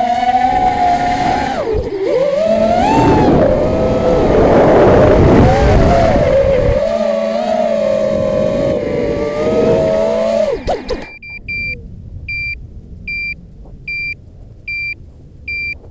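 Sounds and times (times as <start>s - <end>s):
drone motors whining: 0.0s - 15.9s
rush of air: 1.0s - 6.9s.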